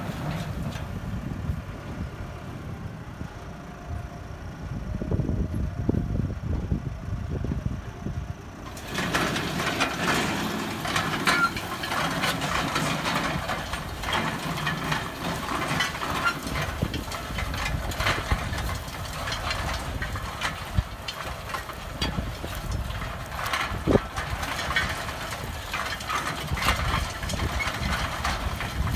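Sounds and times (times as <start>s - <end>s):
tractor engine under load: 0.0s - 28.9s
cultivator tines clattering: 8.6s - 28.9s.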